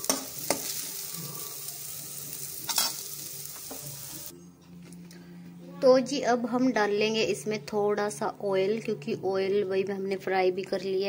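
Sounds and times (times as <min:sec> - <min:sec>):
onions sizzling in oil: 0:00.0 - 0:04.3.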